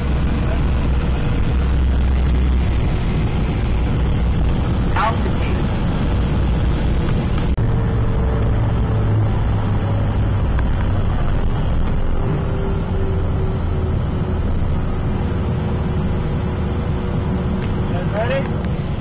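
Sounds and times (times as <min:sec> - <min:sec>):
jet engines humming in cabin: 0:00.0 - 0:19.0.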